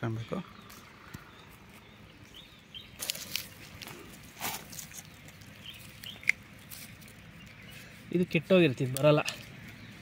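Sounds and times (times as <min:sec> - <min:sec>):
dry leaves crunching: 0:02.8 - 0:08.2.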